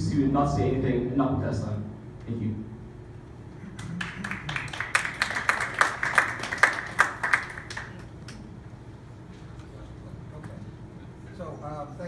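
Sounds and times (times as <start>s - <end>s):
audience applauding: 3.7s - 8.4s.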